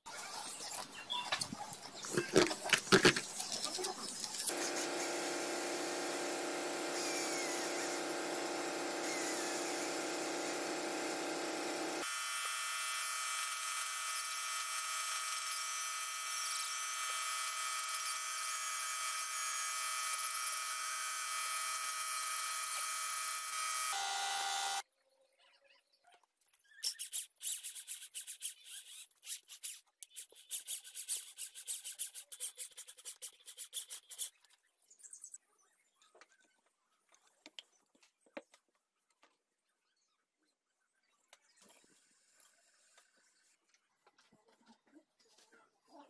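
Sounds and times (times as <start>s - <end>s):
rotary grinder whining: 2.0s - 24.8s.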